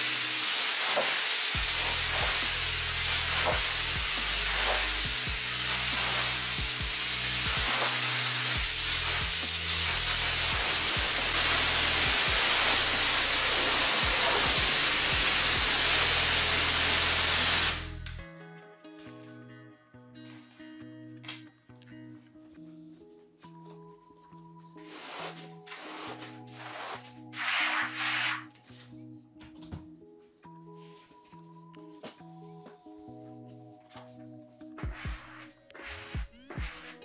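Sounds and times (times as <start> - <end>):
water jet hissing onto floor: 0.0 - 17.9
soft guitar music: 17.8 - 37.0.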